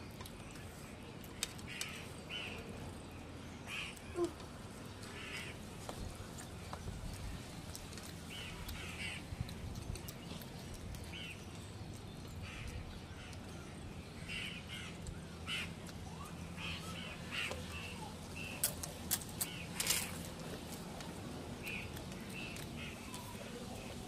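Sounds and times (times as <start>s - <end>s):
crows cawing: 8.4s - 9.2s, 14.3s - 15.8s.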